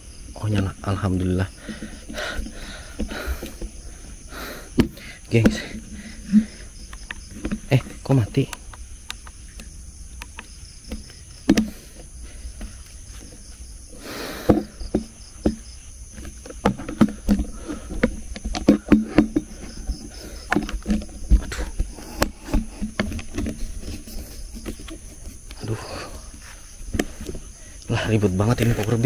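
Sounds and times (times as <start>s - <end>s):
night insects droning: 0.0s - 29.0s
plastic clicks and knocks: 4.8s - 13.4s, 14.5s - 24.0s.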